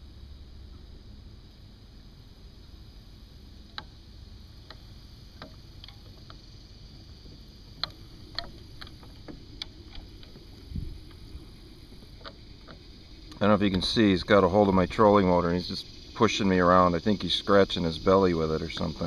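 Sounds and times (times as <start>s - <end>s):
low steady rumble: 0.0s - 19.0s
faint clicks and light knocks: 3.7s - 4.0s, 4.6s - 6.4s, 7.0s - 13.9s.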